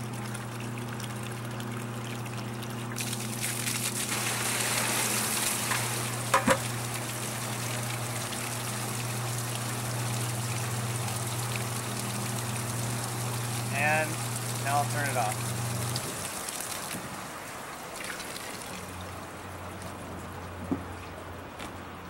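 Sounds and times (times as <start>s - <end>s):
water pouring and splashing: 0.0s - 21.2s
small pump humming: 0.0s - 21.5s.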